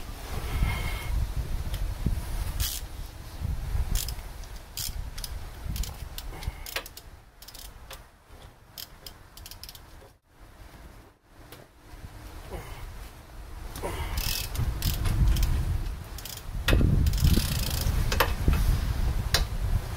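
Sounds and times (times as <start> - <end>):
ratchet wrench clicking: 2.6 - 2.9, 3.9 - 8.0, 8.7 - 10.0, 14.1 - 18.4.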